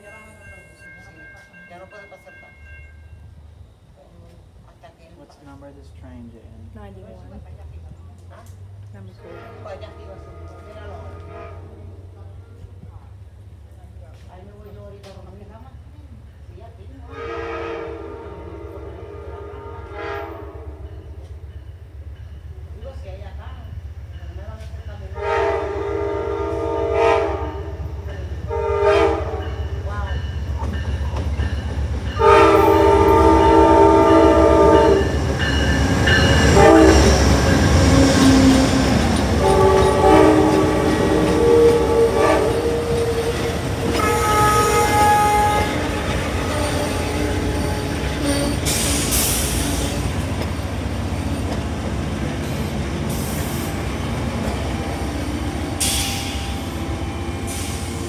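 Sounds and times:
rolling clatter of train cars: 0:00.0 - 0:58.0
diesel locomotive rumble: 0:02.8 - 0:58.0
train air horn blasts: 0:09.1 - 0:12.1, 0:17.0 - 0:21.0, 0:25.2 - 0:29.6, 0:32.1 - 0:50.2.

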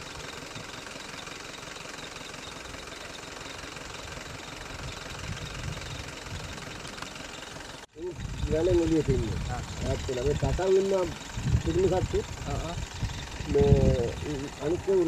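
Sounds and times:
vehicle engine idling: 0:00.0 - 0:15.0.

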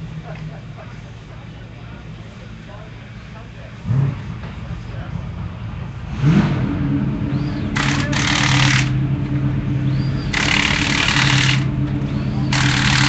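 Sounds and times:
low machine hum: 0:00.0 - 0:13.0
pneumatic impact wrench rattling: 0:07.7 - 0:09.0, 0:10.2 - 0:11.7, 0:12.5 - 0:13.0.

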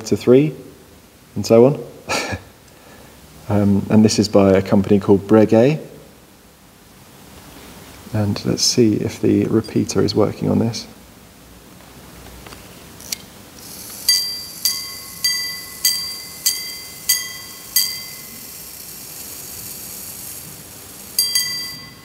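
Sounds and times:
faint high hiss: 0:00.0 - 0:22.0
pocket watch chiming strikes: 0:14.0 - 0:18.8, 0:21.1 - 0:22.0.

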